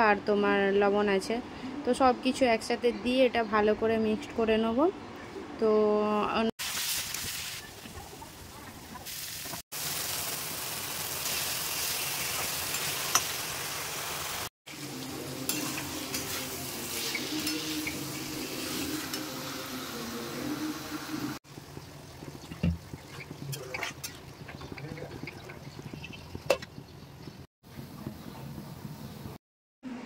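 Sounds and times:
meat and potatoes sizzling: 6.6 - 8.1, 9.0 - 23.5
metal spatula stirring: 15.4 - 19.3.

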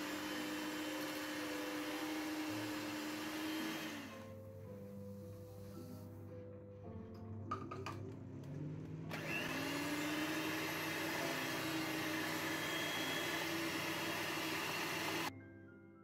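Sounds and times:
electric hand mixer whining: 0.0 - 5.9, 9.1 - 15.3.

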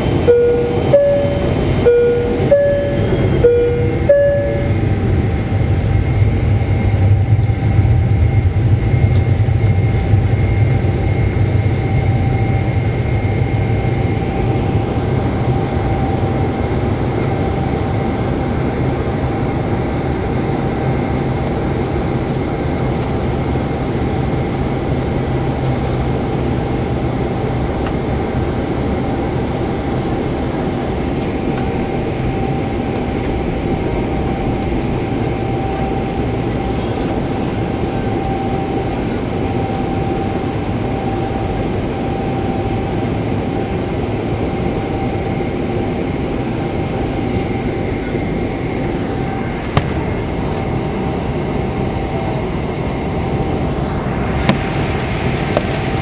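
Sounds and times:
faint whining tones: 0.0 - 16.8
engine drone with low rumble: 0.0 - 56.0.

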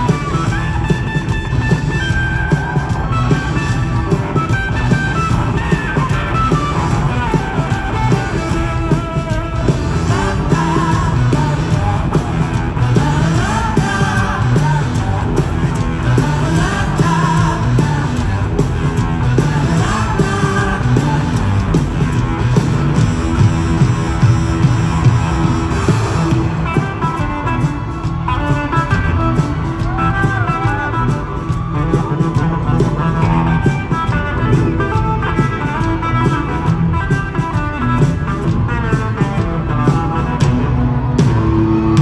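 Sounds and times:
bass: 0.0 - 42.0
electric guitars: 0.0 - 42.0
steady drum beat: 0.0 - 42.0.

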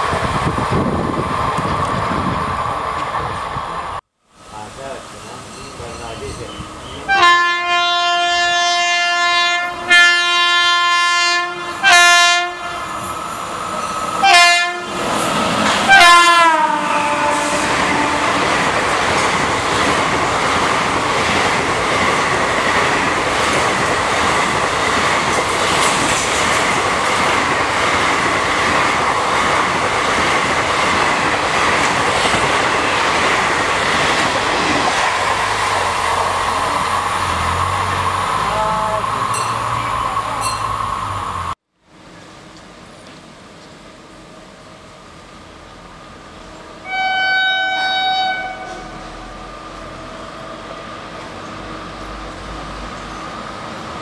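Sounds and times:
train coaches rushing and clattering: 0.0 - 10.7, 11.5 - 43.9
locomotive horn blasts: 6.8 - 13.1, 14.2 - 15.0, 15.8 - 18.5, 46.8 - 49.2.

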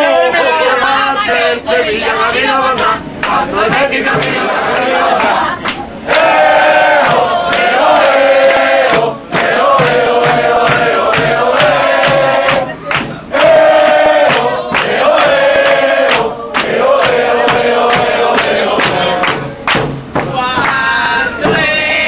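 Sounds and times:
crowd chanting: 0.0 - 22.0
hand claps: 4.2 - 6.3, 7.0 - 20.9.

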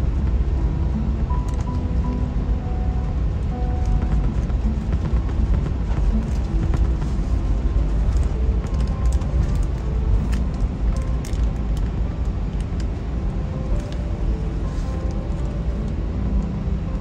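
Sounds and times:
airliner cabin rumble: 0.0 - 17.0
background music: 0.0 - 17.0.

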